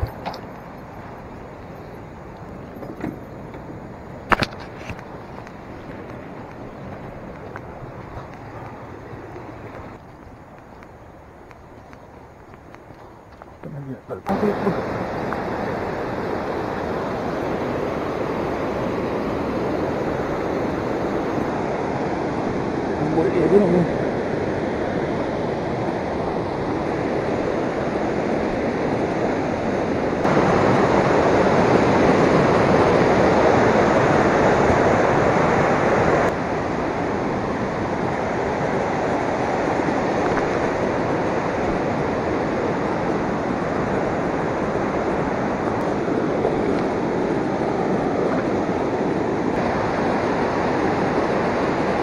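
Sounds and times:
stream cascading over rock: 13.8 - 21.6.

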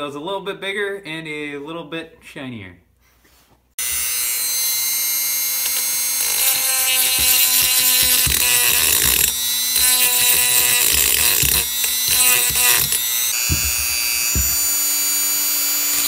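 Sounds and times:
rotary tool whining: 3.8 - 16.0
grinding stone scraping metal: 5.7 - 15.0.

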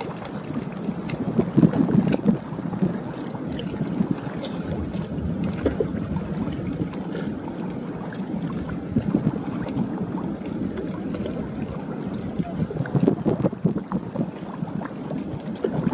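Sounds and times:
wind buffeting microphone: 0.0 - 15.9
low rumble: 1.1 - 15.9.

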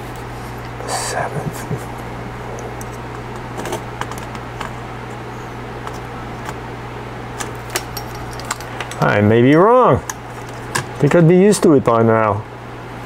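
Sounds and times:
steady low hum: 0.0 - 13.0
probe tips tapping and scraping: 2.0 - 5.2, 5.8 - 6.6, 7.4 - 11.3.

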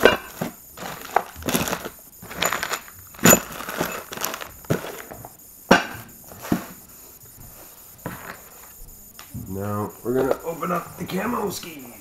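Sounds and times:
metal parts clinking: 0.0 - 5.1
cardboard scraping: 0.0 - 5.3, 6.3 - 8.6
crinkling plastic bags: 0.0 - 5.3.

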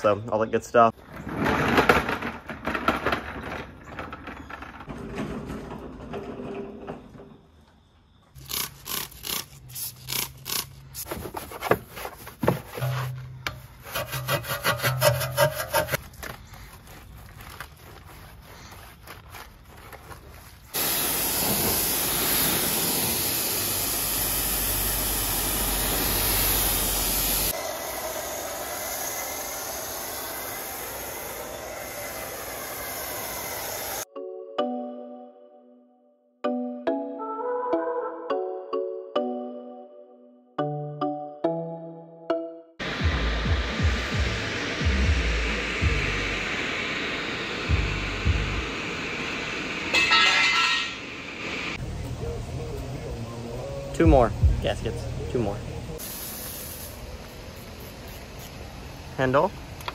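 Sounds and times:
brush scrubbing wheel: 11.0 - 16.0, 16.8 - 20.6
foam cannon spraying hiss: 20.7 - 34.1, 42.8 - 51.8, 56.0 - 58.9.

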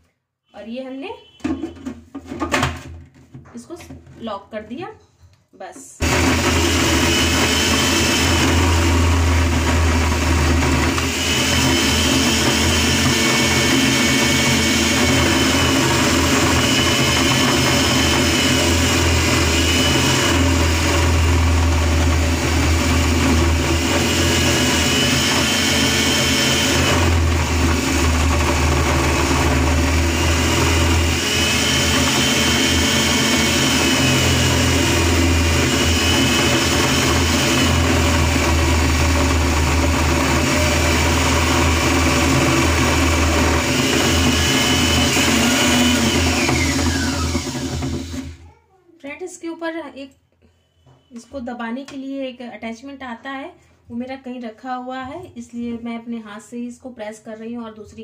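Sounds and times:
food processor motor whining: 6.0 - 48.4.

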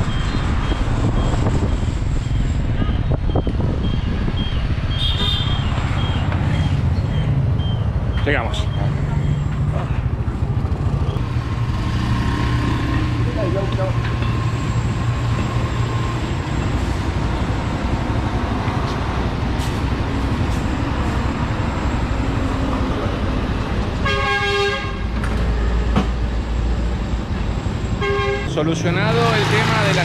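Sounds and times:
busy street traffic: 0.0 - 30.0
vehicle horn honking: 4.9 - 5.7, 24.0 - 25.1, 28.0 - 28.5.

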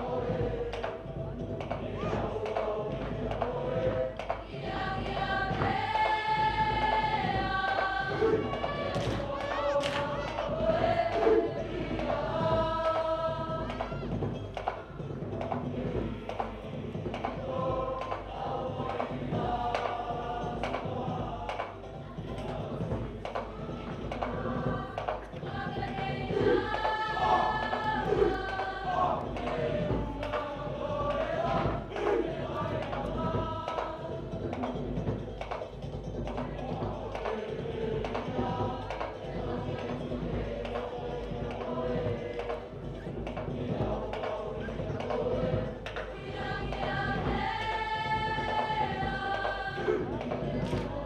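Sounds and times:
group singing in chorus: 0.0 - 51.0.

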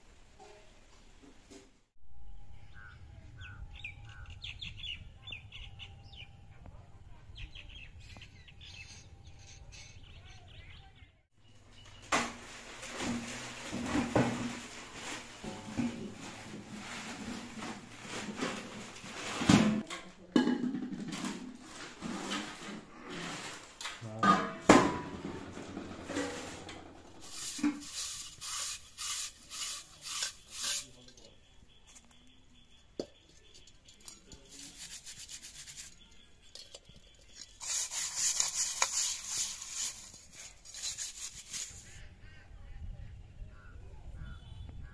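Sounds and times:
metal pots and plates clattering: 12.2 - 22.8, 24.0 - 31.3
straw scrubbing clay lid: 27.2 - 31.1, 34.4 - 36.2, 37.2 - 41.9.

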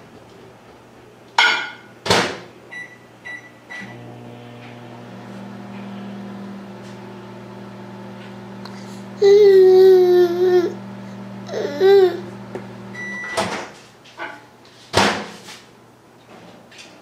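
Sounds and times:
appliance hum: 2.7 - 13.9
baby crying: 9.2 - 10.8, 11.4 - 12.3
baby vocalizing aah: 9.2 - 10.8, 11.4 - 12.3.

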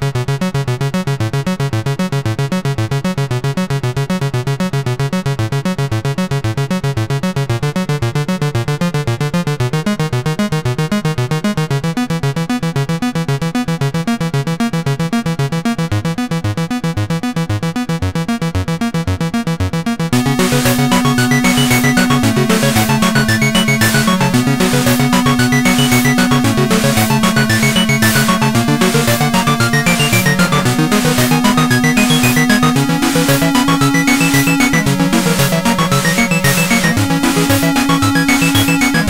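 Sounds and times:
synthesizer music: 20.1 - 39.0.

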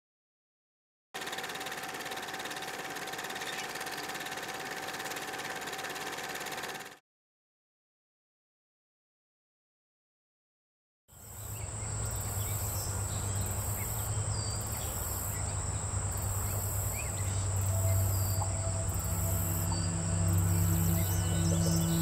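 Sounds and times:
insect chirping: 11.2 - 22.0
insects trilling: 11.2 - 22.0
low steady rumble: 17.1 - 22.0
soft sustained music notes: 17.1 - 22.0.

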